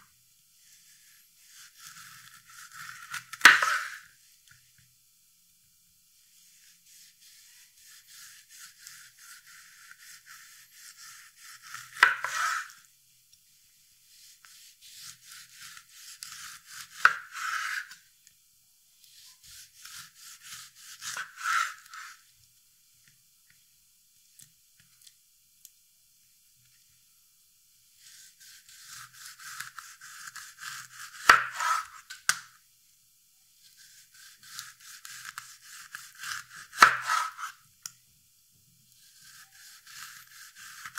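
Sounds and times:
knife rasping through orange: 6.5 - 12.8, 19.1 - 22.2, 33.7 - 37.6.

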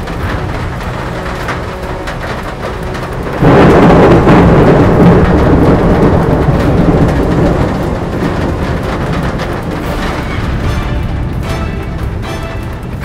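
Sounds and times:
rain hissing: 0.0 - 13.0
thunder crack and rumble: 0.0 - 13.0.

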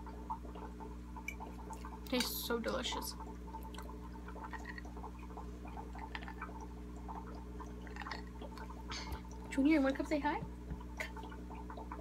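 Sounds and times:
aquarium air pump humming: 0.0 - 12.0
water bubbling and dripping: 0.0 - 12.0.

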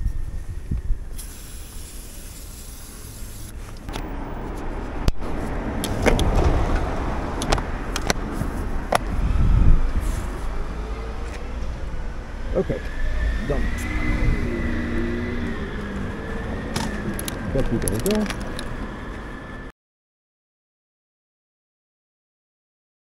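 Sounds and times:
aerosol spray hiss: 1.1 - 3.6
low rumble: 3.8 - 19.7.

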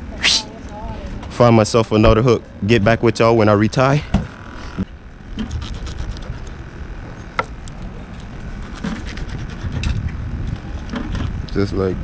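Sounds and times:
wind rumbling on microphone: 4.2 - 7.2, 7.9 - 12.0.

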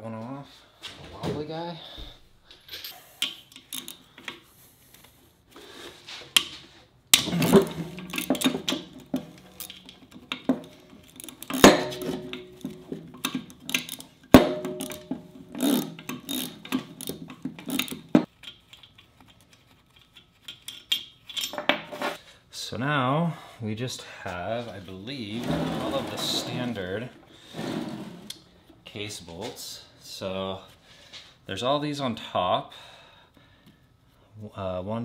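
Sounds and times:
socket wrench scraping and clicking: 2.8 - 4.4, 7.2 - 21.7
metal clinks: 7.3 - 19.0
sharp metallic knocks: 11.5 - 13.0, 14.3 - 18.3.

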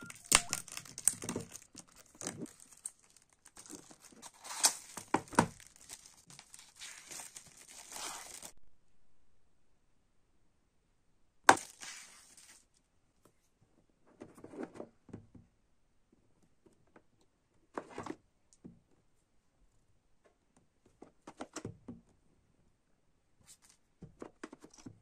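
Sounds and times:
crinkly rustle: 0.0 - 8.6, 11.6 - 12.8.

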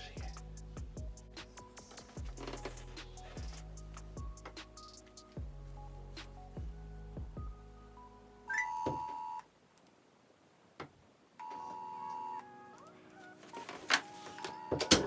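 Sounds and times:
phone ringback tone: 8.5 - 9.4, 11.4 - 13.4, 14.3 - 15.0.

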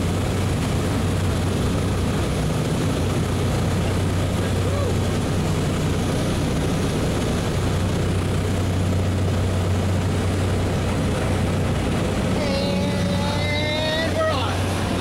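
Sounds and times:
propeller aircraft engine drone: 0.0 - 15.0
faint voice: 12.3 - 14.7.

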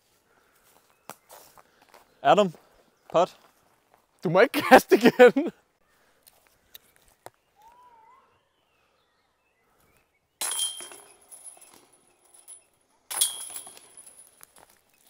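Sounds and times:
discs hitting metal chains: 10.4 - 14.8.

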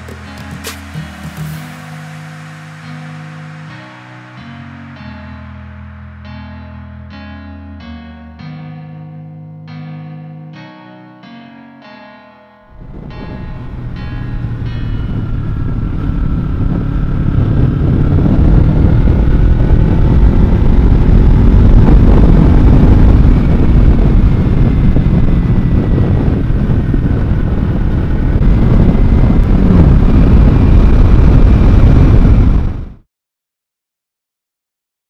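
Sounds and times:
motorcycle engine running: 0.0 - 1.8, 13.1 - 33.0
wind rush on microphone: 12.7 - 33.0.

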